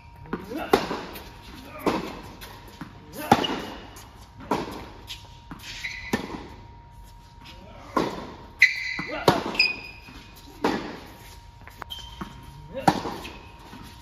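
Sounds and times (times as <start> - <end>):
tennis balls struck and bouncing: 0.2 - 6.7, 7.8 - 11.1, 11.7 - 13.9.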